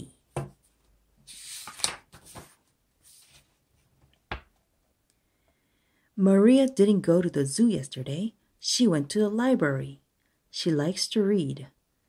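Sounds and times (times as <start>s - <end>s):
book pages turning: 1.3s - 3.6s.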